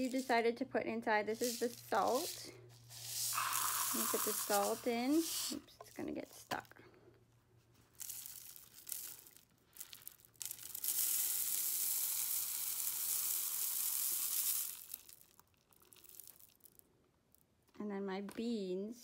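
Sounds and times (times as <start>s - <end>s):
salt pouring through a funnel: 0.0s - 0.5s, 1.2s - 6.5s, 8.0s - 16.8s.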